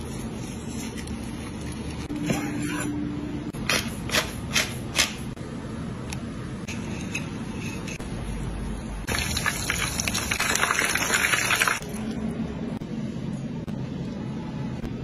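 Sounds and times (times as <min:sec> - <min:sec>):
low steady hum: 0:00.0 - 0:04.1.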